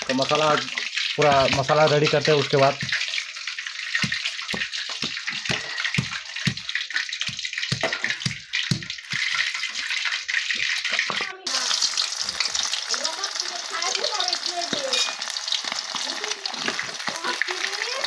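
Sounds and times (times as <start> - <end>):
meat sizzling in hot oil: 0.0 - 18.0
stone pounding on stone slab: 4.0 - 9.4
rain hissing: 11.5 - 18.0.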